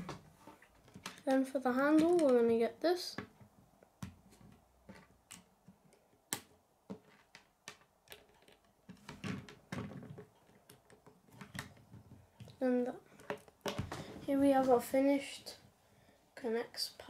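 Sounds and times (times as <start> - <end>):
plastic pieces clicking together: 4.9 - 11.8.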